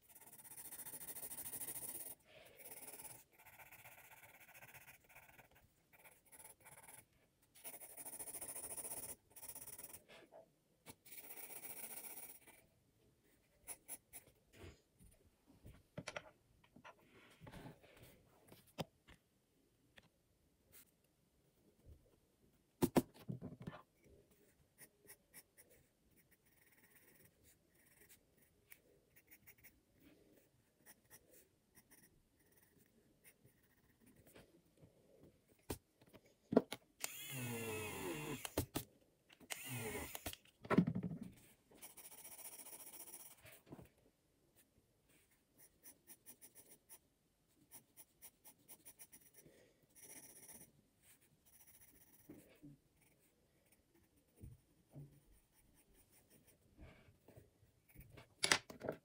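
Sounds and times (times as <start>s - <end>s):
pencil scratching on paper: 0.0s - 10.3s, 10.9s - 12.7s, 13.3s - 14.4s, 23.9s - 34.5s, 41.8s - 43.6s, 45.1s - 47.0s, 47.6s - 58.2s.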